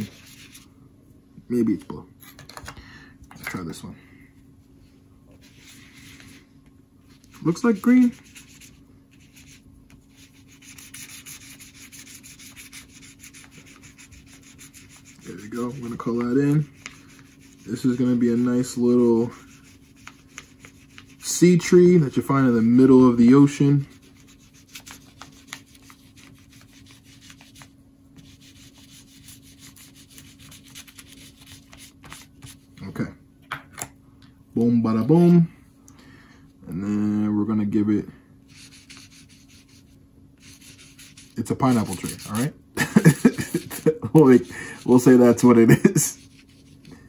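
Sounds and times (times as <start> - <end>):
ice cube scrubbing on paper: 7.3 - 21.6, 23.8 - 32.6, 38.5 - 46.9.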